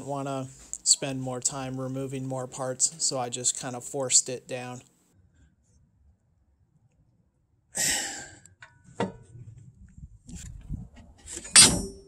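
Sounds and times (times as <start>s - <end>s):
breathy exhale of effort: 7.8s - 8.4s.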